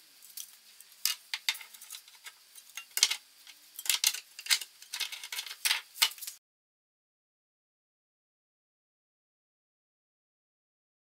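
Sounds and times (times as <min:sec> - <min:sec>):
metal clinks and scrapes: 0:01.0 - 0:06.4.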